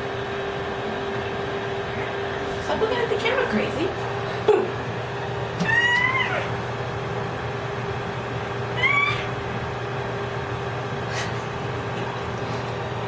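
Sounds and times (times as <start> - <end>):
low background hum: 0.0 - 13.0
infant squealing: 5.6 - 6.5, 8.8 - 9.3.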